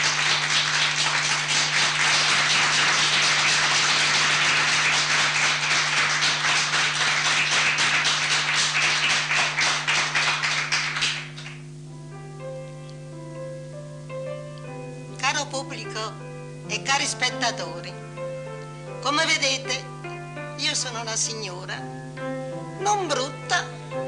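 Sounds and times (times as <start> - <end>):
audience applauding: 0.0 - 11.6
quiet music: 11.8 - 24.0.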